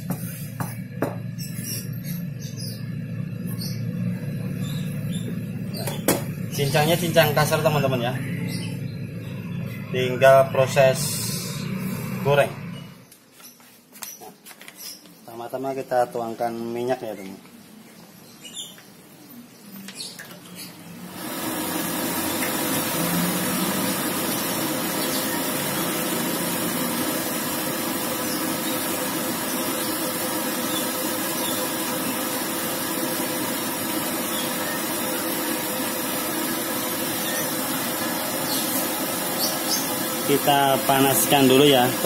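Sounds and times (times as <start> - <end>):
gas burner hissing: 9.9 - 13.0, 21.1 - 42.0.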